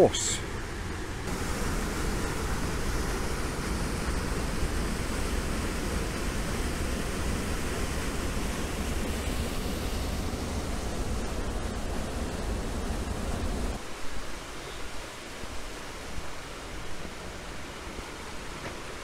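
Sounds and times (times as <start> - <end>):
waterfall rushing: 1.3 - 19.0.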